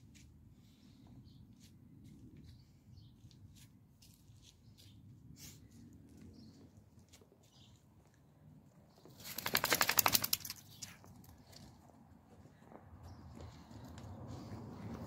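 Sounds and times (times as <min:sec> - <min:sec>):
dog shaking ears flapping: 0:09.2 - 0:10.8.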